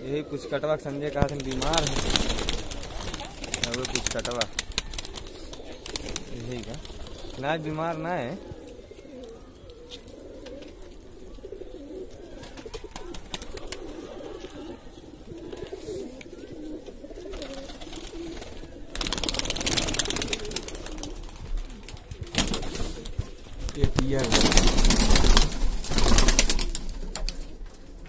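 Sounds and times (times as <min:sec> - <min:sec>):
pigeons cooing: 0:00.0 - 0:28.0.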